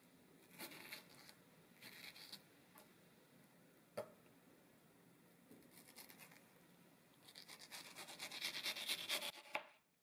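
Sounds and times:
knife slicing on cutting board: 0:07.3 - 0:09.7.

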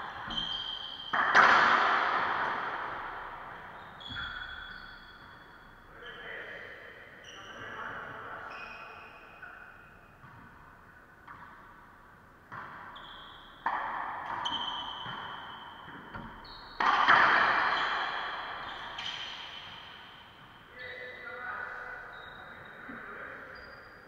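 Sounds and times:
racquetball hits echoing: 0:00.0 - 0:05.9, 0:09.2 - 0:21.2.

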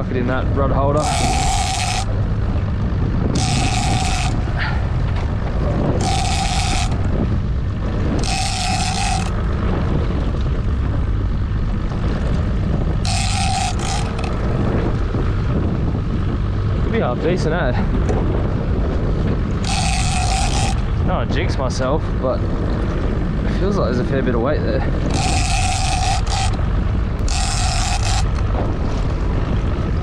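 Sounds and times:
outboard motor idling: 0:00.0 - 0:30.0
wind on microphone: 0:00.0 - 0:30.0
fishing reel drag buzzing: 0:00.9 - 0:09.9, 0:12.9 - 0:15.4, 0:19.5 - 0:21.1, 0:24.8 - 0:29.4.

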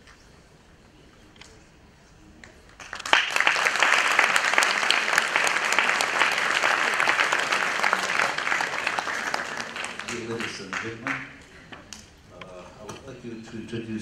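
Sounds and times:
audience applauding: 0:02.8 - 0:11.5.

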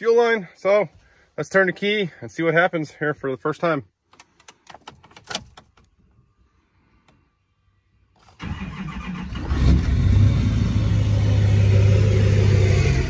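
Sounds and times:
diesel engine cranking: 0:08.2 - 0:13.0.

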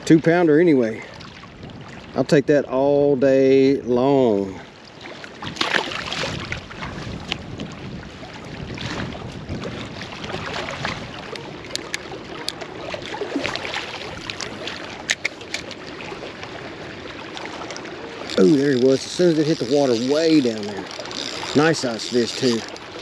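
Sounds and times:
wind buffeting microphone: 0:00.0 - 0:23.0
water lapping at rocks: 0:04.3 - 0:23.0
fish splashing into water: 0:05.4 - 0:06.6
fishing reel clicks: 0:18.2 - 0:22.9.

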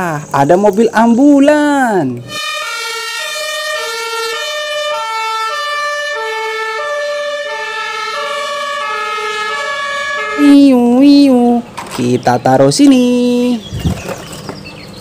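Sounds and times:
two-tone ambulance siren: 0:02.3 - 0:11.6.

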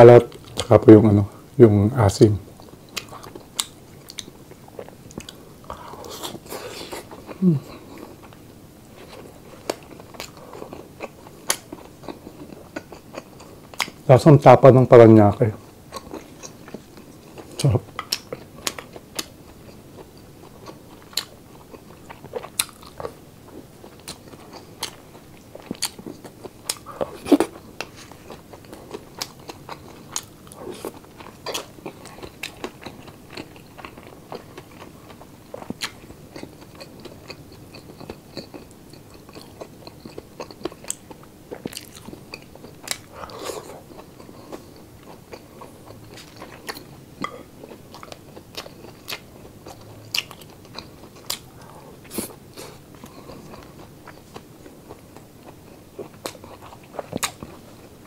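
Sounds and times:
crunchy chewing: 0:15.6 - 0:58.0.

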